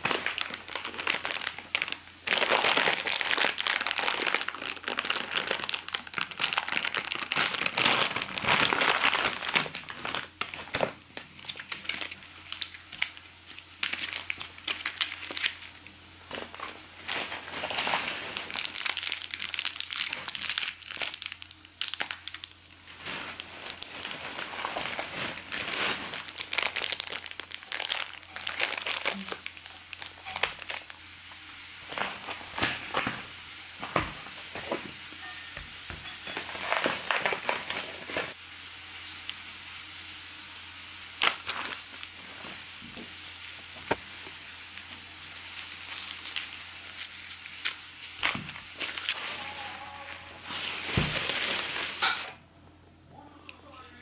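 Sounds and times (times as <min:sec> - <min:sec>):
plastic packaging crinkling: 0:00.0 - 0:33.3, 0:36.0 - 0:38.4, 0:41.0 - 0:52.3.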